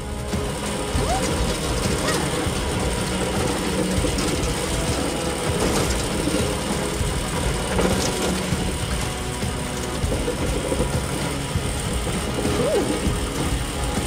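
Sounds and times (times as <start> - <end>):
mine carts rolling on rails: 0.0 - 14.0.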